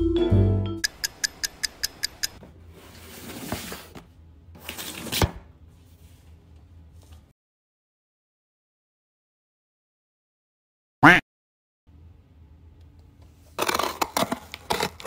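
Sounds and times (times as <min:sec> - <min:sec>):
vibraphone music: 0:00.0 - 0:00.9
sharp ticks: 0:00.8 - 0:02.4
cardboard box sliding on wooden floor: 0:02.7 - 0:04.0.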